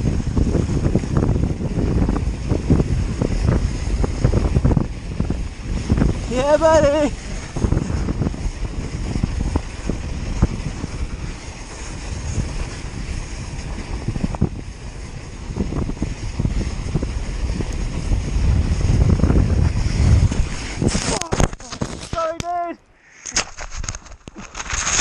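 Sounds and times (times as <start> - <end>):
bike knocking and clattering: 0.0 - 22.6
wind buffeting microphone: 0.0 - 22.8
tyres hissing on snow: 5.6 - 21.4.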